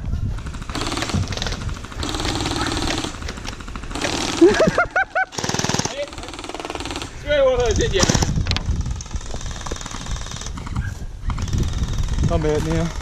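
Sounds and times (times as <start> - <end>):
electric toy rifle firing full auto: 0.5 - 4.6, 5.3 - 7.1.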